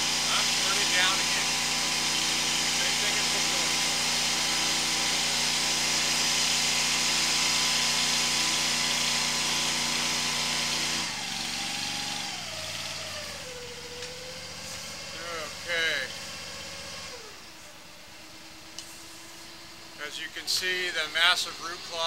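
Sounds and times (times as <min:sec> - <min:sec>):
water jet hissing: 0:00.0 - 0:12.2
high-pressure pump engine running: 0:00.0 - 0:22.0.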